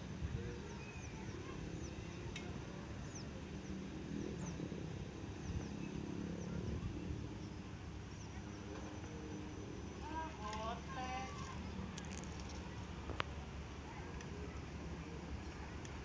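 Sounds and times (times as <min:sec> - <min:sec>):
small birds chirping: 0:00.6 - 0:13.3.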